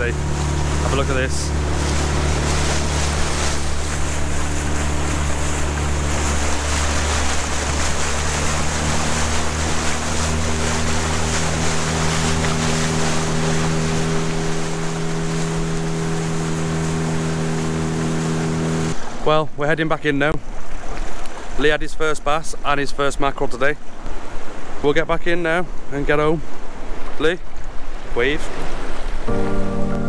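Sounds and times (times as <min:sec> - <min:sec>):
outboard motor running: 0:00.0 - 0:19.3
water rushing along hull: 0:00.0 - 0:30.0.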